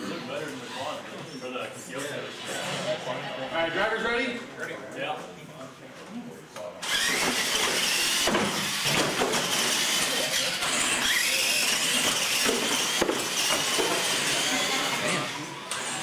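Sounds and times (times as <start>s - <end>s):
electric motors whining: 6.8s - 16.0s.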